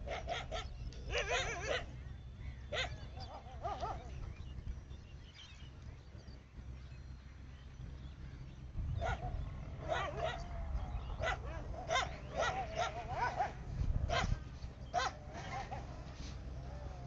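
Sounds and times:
dogs barking: 0.0s - 2.0s, 2.7s - 4.3s, 8.9s - 17.0s.

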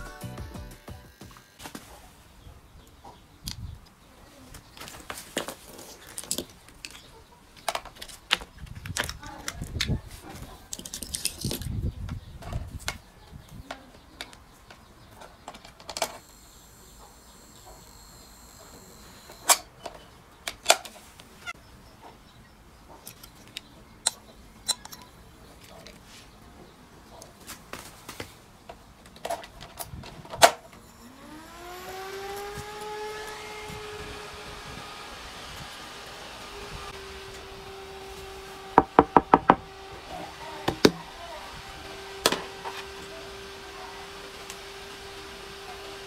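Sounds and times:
computer cooling fan whine: 16.2s - 19.5s, 30.6s - 46.0s
clicks and knocks of parts handled: 23.0s - 26.0s.

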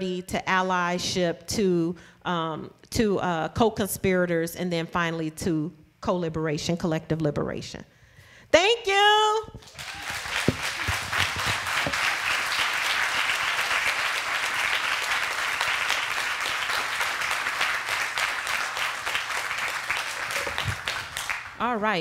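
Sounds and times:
audience applauding: 9.6s - 21.6s.

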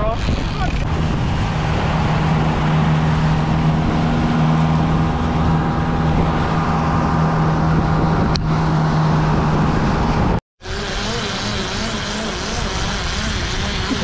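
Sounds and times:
wind rushing: 0.0s - 10.4s
outboard motor running: 0.0s - 14.0s
churning water: 10.6s - 14.0s.

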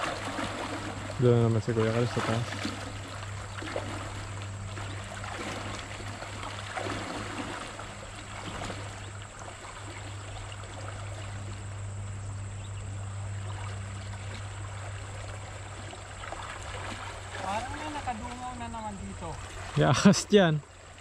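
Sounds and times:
river rushing: 0.0s - 11.2s
low steady hum: 0.0s - 21.0s.

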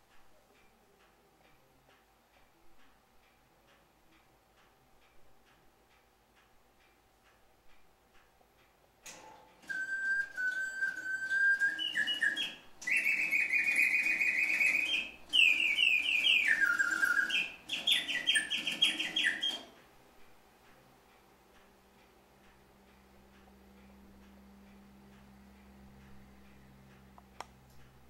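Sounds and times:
clock ticking: 0.0s - 28.0s
mechanical birdsong whistle: 9.6s - 19.8s.

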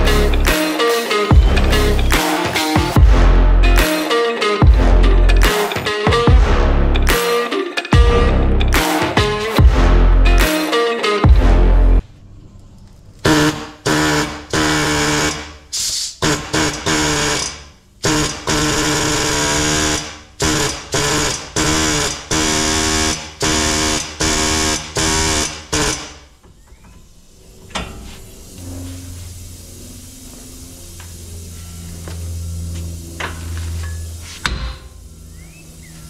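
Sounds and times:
pneumatic impact wrench bursts: 13.3s - 32.0s.

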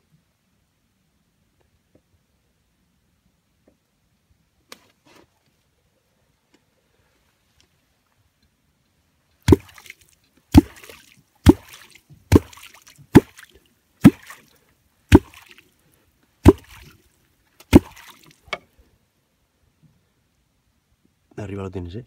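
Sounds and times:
wooden clonk striking water: 9.4s - 14.5s, 15.1s - 15.6s, 16.4s - 17.0s, 17.6s - 18.6s.

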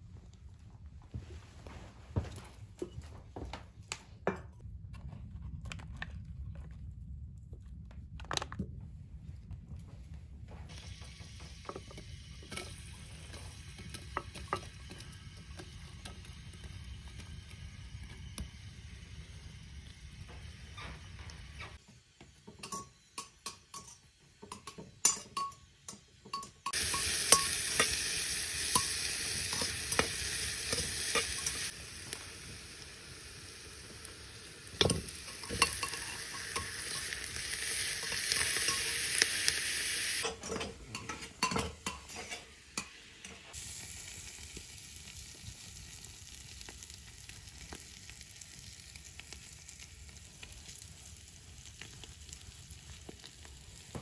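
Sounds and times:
meat and onion sizzling: 10.7s - 54.0s
spoon scraping metal pot: 34.8s - 37.3s, 40.2s - 42.9s.

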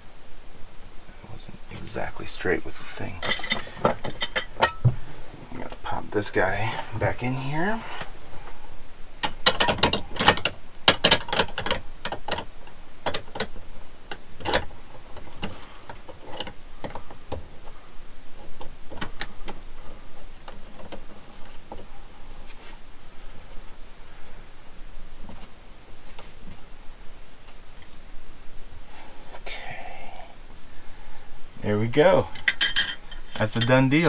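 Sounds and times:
metal lamp clinking against bracket: 3.2s - 4.9s, 9.2s - 12.4s, 32.3s - 33.8s.

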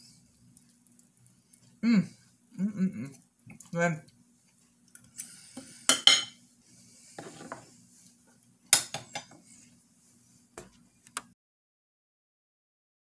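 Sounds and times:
cutlery clinking on plate: 5.9s - 6.4s.

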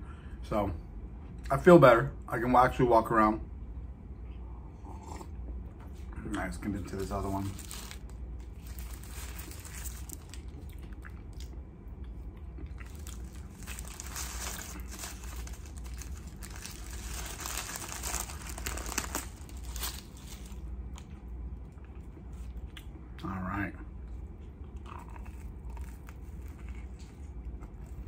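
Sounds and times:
paper wrapper crinkling: 6.9s - 10.8s, 12.8s - 20.7s.

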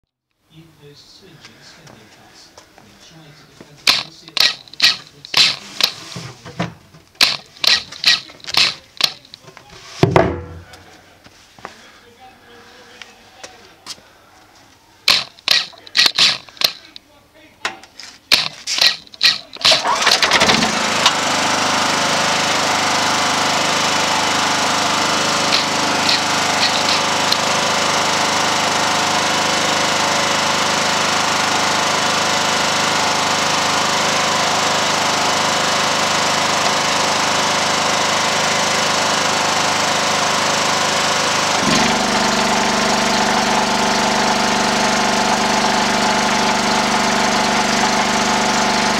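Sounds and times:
generator engine running: 3.6s - 9.5s, 13.4s - 17.0s, 18.3s - 48.9s
recoil starter pulls: 3.8s - 6.1s, 7.0s - 9.4s, 15.0s - 17.0s, 18.3s - 48.9s.

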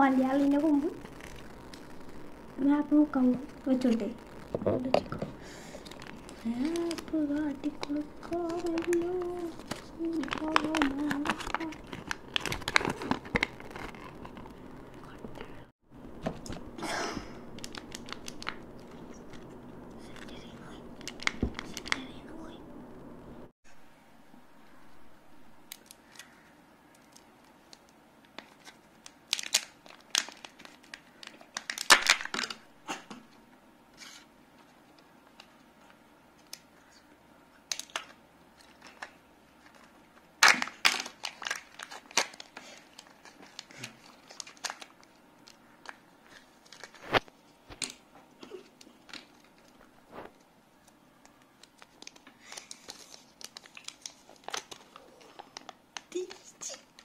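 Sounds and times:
packaging crinkling and tearing: 0.2s - 15.6s, 16.2s - 22.2s, 25.6s - 32.7s, 37.6s - 57.0s.

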